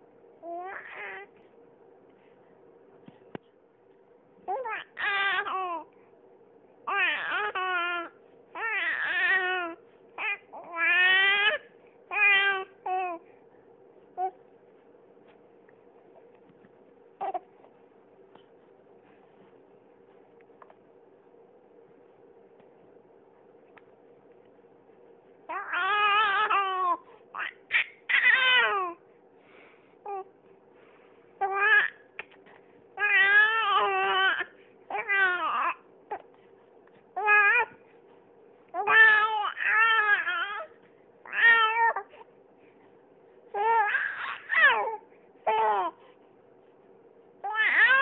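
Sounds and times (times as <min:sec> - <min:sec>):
baby crying: 0:00.4 - 0:01.3, 0:04.5 - 0:05.9, 0:06.9 - 0:13.2, 0:25.5 - 0:29.0, 0:31.4 - 0:32.0, 0:33.0 - 0:36.2, 0:37.2 - 0:37.7, 0:38.8 - 0:42.2, 0:43.6 - 0:46.0, 0:47.4 - 0:48.0.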